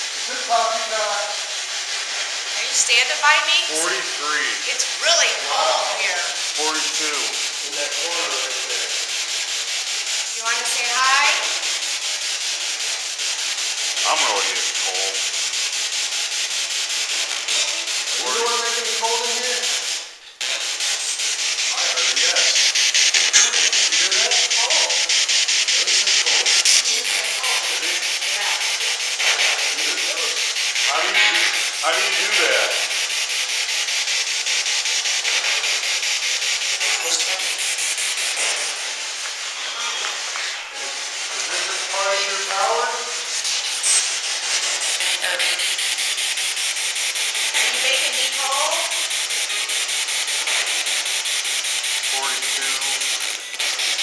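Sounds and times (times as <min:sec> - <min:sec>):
fragments of broadcast voices: 0:02.5 - 0:09.1, 0:10.3 - 0:11.6, 0:14.0 - 0:15.2, 0:17.4 - 0:32.9, 0:36.8 - 0:45.7, 0:47.5 - 0:48.9, 0:52.0 - 0:53.4
radio static sweeping: 0:02.5 - 0:12.2, 0:12.9 - 0:16.1, 0:16.7 - 0:49.7, 0:52.0 - 0:54.0.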